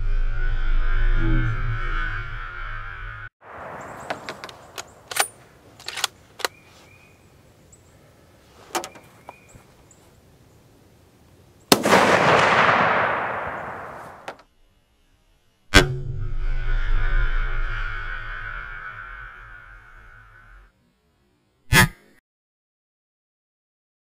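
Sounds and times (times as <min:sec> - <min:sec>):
clicks and knocks handling rifle: 0:04.0 - 0:06.8, 0:08.6 - 0:09.8
rifle shot: 0:11.7 - 0:14.3.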